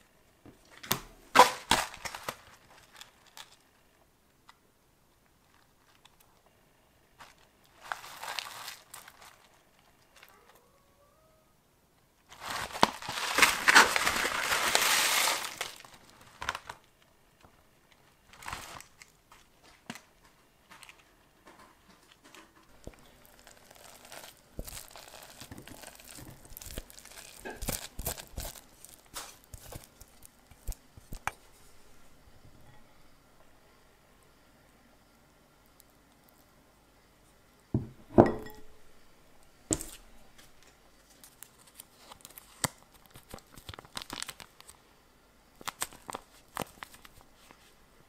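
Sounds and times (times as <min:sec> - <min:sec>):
foil pouch crinkling: 0:00.8 - 0:03.8, 0:07.2 - 0:10.4, 0:12.3 - 0:17.0, 0:17.9 - 0:21.1, 0:22.1 - 0:31.4, 0:39.7 - 0:44.8, 0:45.6 - 0:47.8.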